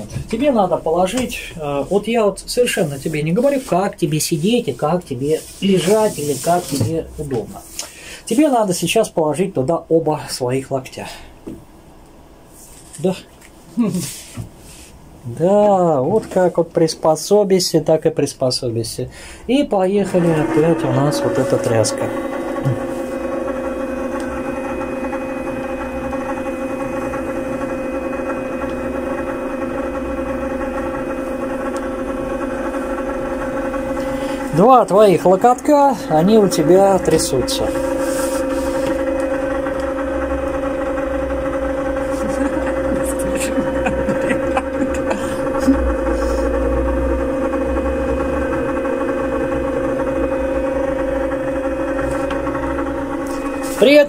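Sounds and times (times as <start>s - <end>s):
vibration platform humming: 19.2s - 54.0s.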